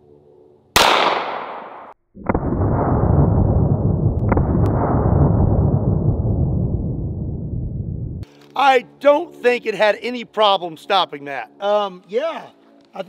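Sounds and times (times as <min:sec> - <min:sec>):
gunshot ringing: 0:00.8 - 0:02.0
sharp cracks: 0:00.8 - 0:02.8, 0:04.2 - 0:05.4
slowed-down gunshot rumble: 0:00.8 - 0:08.2.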